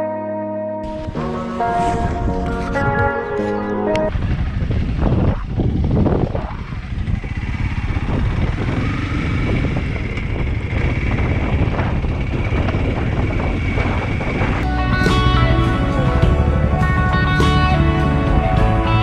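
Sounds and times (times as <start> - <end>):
motorcycle engine running: 0.8 - 19.0.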